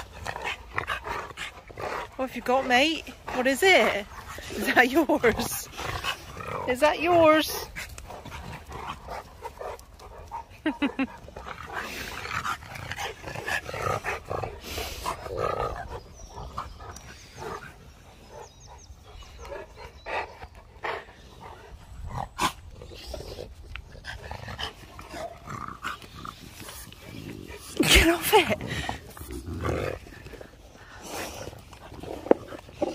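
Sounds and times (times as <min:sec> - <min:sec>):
dogs panting and grunting: 0:00.0 - 0:32.9.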